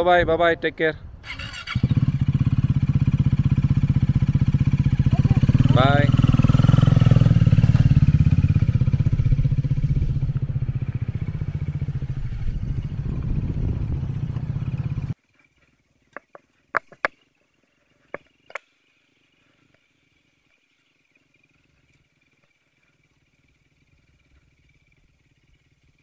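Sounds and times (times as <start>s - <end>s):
motorcycle engine rumbling: 1.0s - 17.2s, 18.0s - 26.0s
faint clicks: 19.5s - 25.9s.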